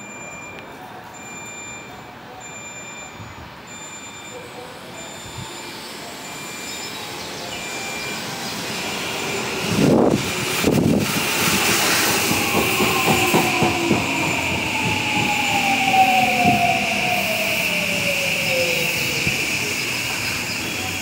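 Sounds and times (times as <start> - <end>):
electric train braking: 4.3 - 21.0
train motor whine: 4.8 - 21.0.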